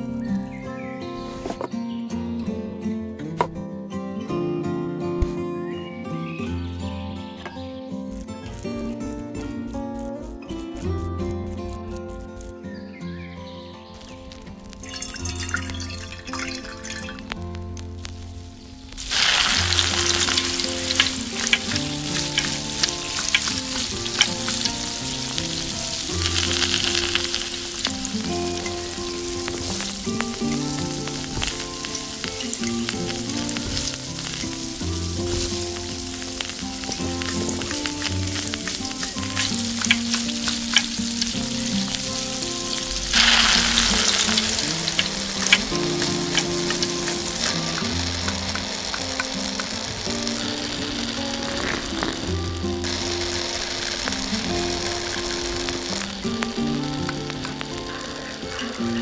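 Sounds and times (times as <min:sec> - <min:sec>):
onion sizzling in hot oil: 0:14.0 - 0:59.0.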